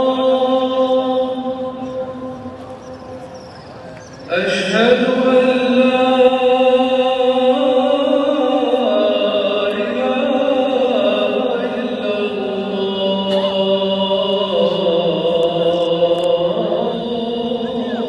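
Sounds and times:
person chanting: 0.0s - 3.2s, 4.3s - 18.0s.

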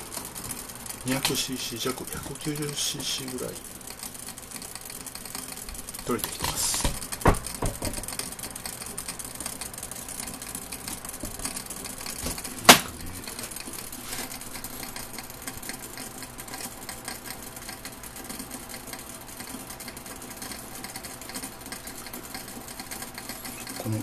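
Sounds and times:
fast mechanical rattle: 0.0s - 24.0s.

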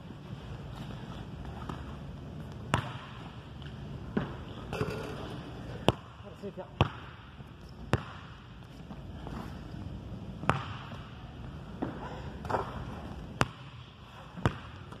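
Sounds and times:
basketball bouncing on wooden floor: 2.7s - 3.2s, 10.4s - 11.0s, 14.4s - 15.0s.

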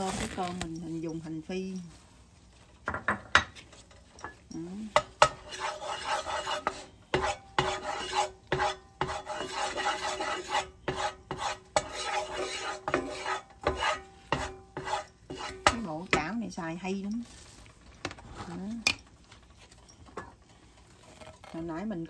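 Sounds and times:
spatula scraping frying pan: 4.9s - 16.4s
spatula knocking against pan: 5.0s - 16.4s.

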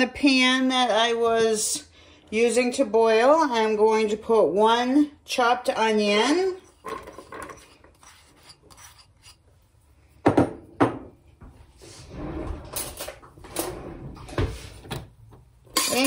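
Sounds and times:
ceramic bowl knocking on counter: 10.2s - 11.1s
kitchenware clacking: 15.7s - 16.0s.

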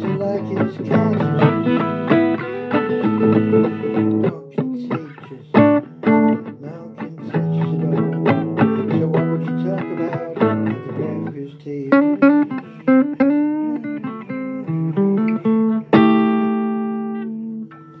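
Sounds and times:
blues guitar playing: 0.0s - 18.0s.

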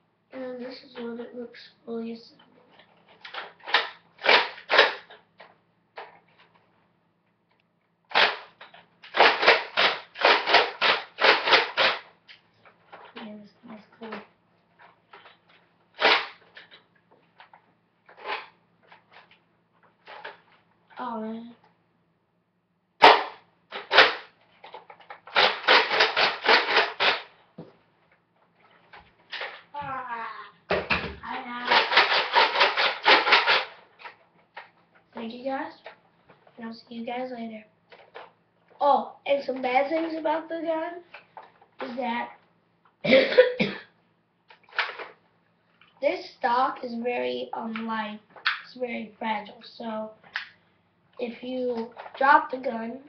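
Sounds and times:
plastic toy blaster scraping: 2.8s - 5.2s, 8.1s - 12.1s, 16.0s - 16.8s, 18.1s - 19.4s, 23.0s - 27.3s, 31.6s - 34.2s
boy making shooting noises: 31.2s - 33.7s.

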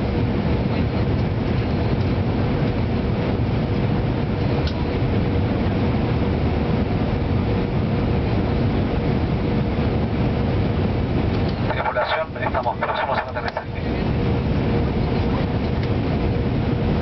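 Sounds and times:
airliner cabin roar: 0.0s - 17.0s
faint steady hum: 11.5s - 15.9s.

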